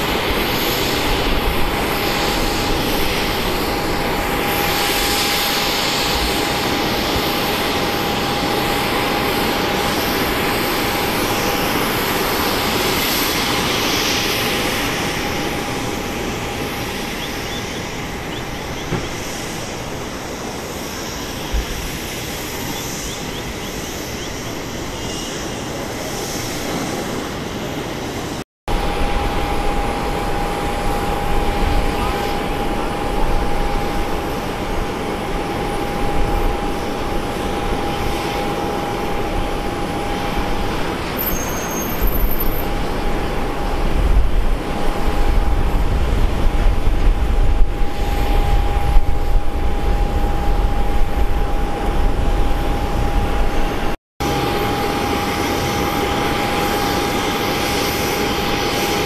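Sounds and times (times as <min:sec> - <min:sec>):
jet engine rush with whine: 0:00.0 - 0:59.0.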